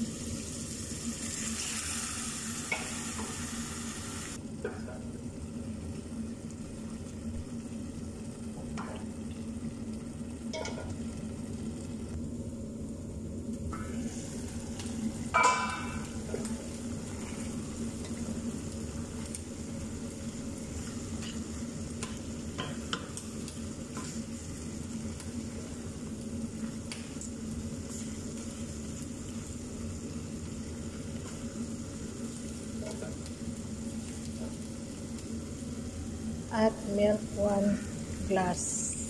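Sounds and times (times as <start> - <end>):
chicken sizzling in sauce: 0.0 - 39.0.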